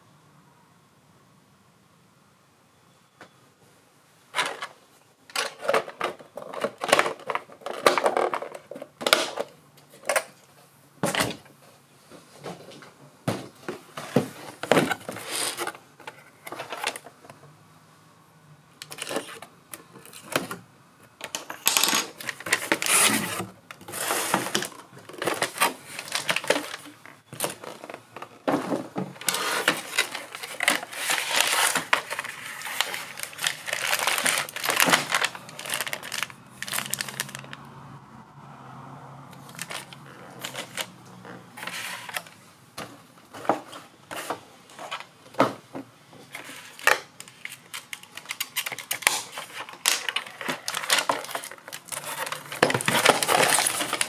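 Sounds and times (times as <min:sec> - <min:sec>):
cardboard and plastic bag rustling: 0:12.2 - 0:17.2, 0:22.1 - 0:37.6, 0:39.4 - 0:42.3, 0:46.2 - 0:54.0.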